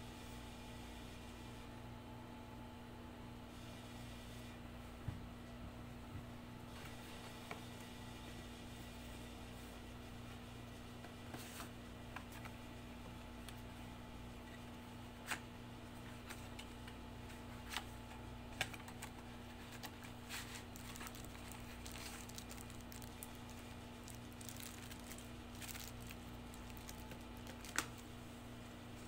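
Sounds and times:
air conditioner humming: 0.0 - 29.0
cardboard and plastic rustling: 17.3 - 28.2.

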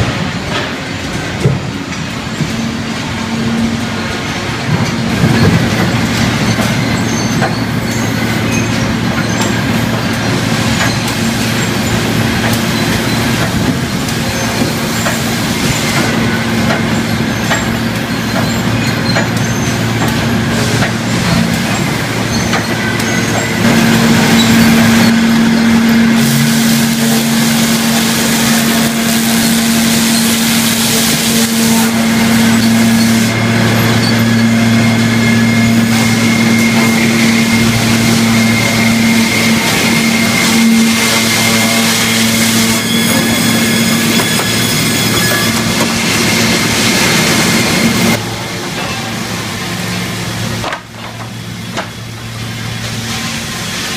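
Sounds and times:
industrial machinery din: 0.0 - 53.7.

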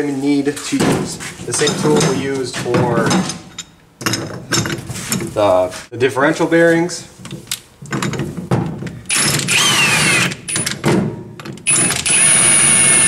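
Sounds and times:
impact wrench whirring: 9.1 - 10.8, 11.6 - 13.0.

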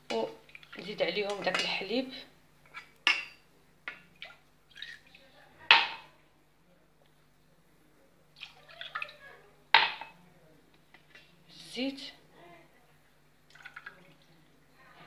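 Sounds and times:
milk pouring into metal pan: 13.5 - 14.3.

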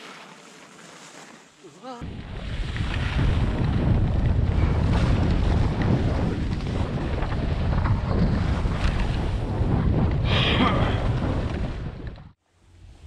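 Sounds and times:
skis scraping on packed snow: 0.0 - 9.5
wind buffeting microphone: 2.0 - 12.4.

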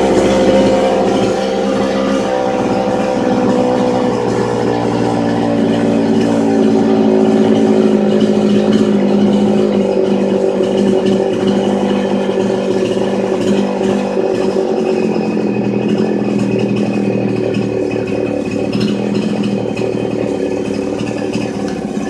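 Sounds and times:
chainsaw engine idling: 0.0 - 22.0.

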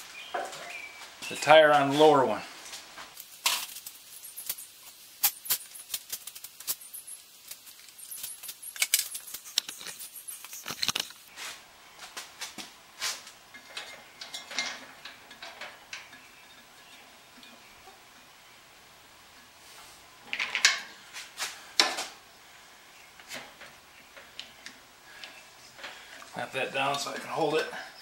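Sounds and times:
tools and parts clinking: 3.2 - 11.3, 13.2 - 17.6, 20.3 - 20.9.

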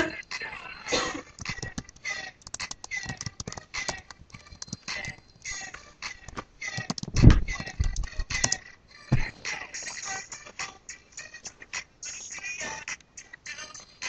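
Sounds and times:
hands clicking and rustling: 1.4 - 8.6
heavy bump: 9.1 - 9.4.

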